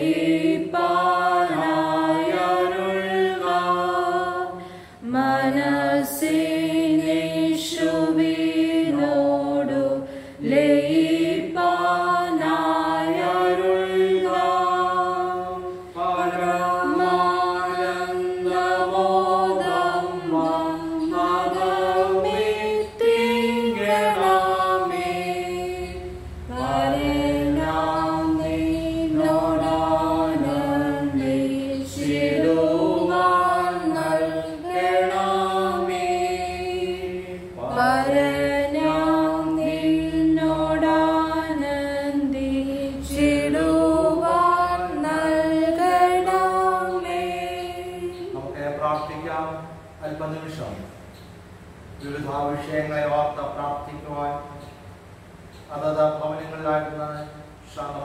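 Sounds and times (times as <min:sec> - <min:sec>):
people singing a hymn together: 0:00.0 - 0:50.0.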